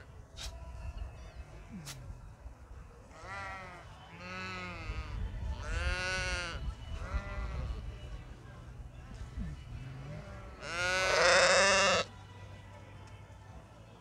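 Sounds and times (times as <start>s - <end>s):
sheep bleating: 3.1s - 7.9s, 9.9s - 12.1s.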